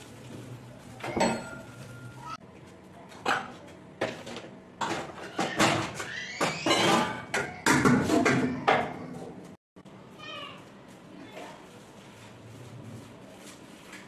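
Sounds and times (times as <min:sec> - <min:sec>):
dishes and utensils clattering: 0:00.9 - 0:02.4, 0:03.1 - 0:09.6.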